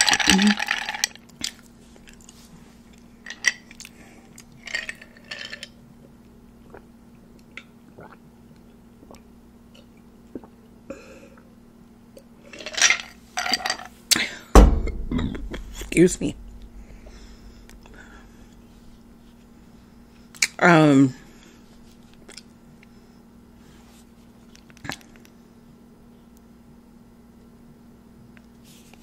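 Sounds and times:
sipping and swallowing: 0:07.6 - 0:08.2, 0:09.0 - 0:10.6
heavy thump: 0:14.6 - 0:19.4.

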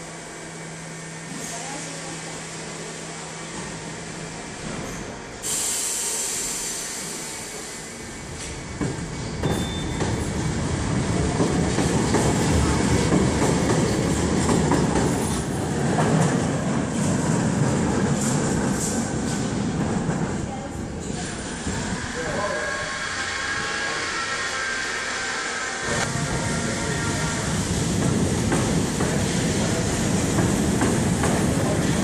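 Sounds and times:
train wheels rumbling on rails: 0:02.9 - 0:22.5, 0:25.6 - 0:32.0
train hiss: 0:05.4 - 0:08.5
high wheel squeal: 0:22.0 - 0:27.4.

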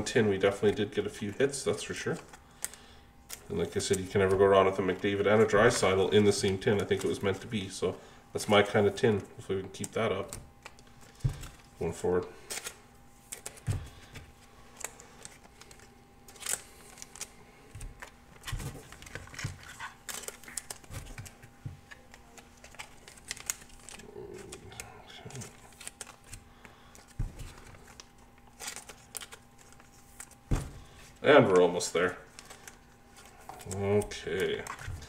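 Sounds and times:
plastic sleeves rustling and crinkling: 0:00.2 - 0:35.0.

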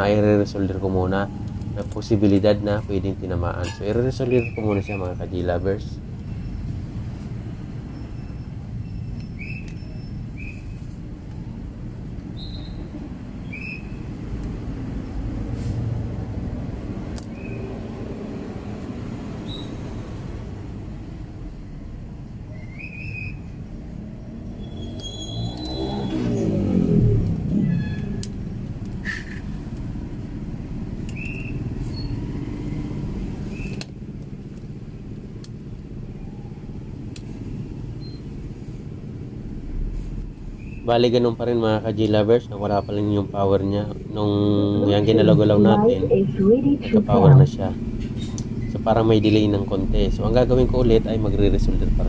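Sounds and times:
road traffic rumble: 0:00.0 - 0:52.0
vehicle passing: 0:12.9 - 0:22.3, 0:23.5 - 0:52.0.

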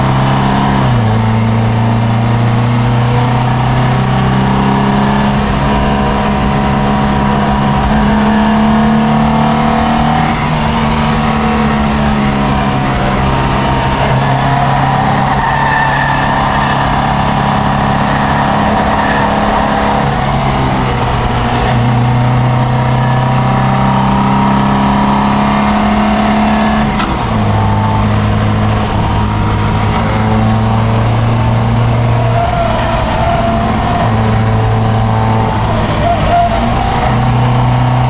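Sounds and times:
car engine pulling hard: 0:00.0 - 0:38.0
road and wind noise: 0:00.0 - 0:38.0.

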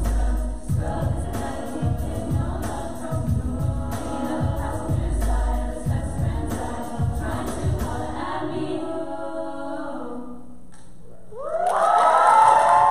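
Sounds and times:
low thumping beat: 0:00.0 - 0:08.2
women's choir singing: 0:00.0 - 0:10.6
rising whoops: 0:11.3 - 0:12.9.

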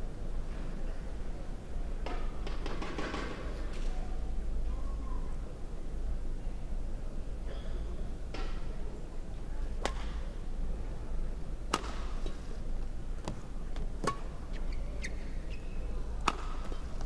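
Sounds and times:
rackets hitting shuttlecock: 0:09.8 - 0:10.2, 0:11.7 - 0:12.3, 0:14.0 - 0:14.3, 0:16.2 - 0:16.8
court shoes squeaking: 0:14.0 - 0:17.0.

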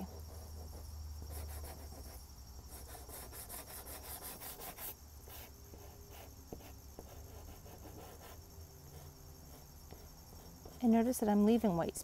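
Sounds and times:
chalk pastel rubbing on paper: 0:00.4 - 0:05.5.

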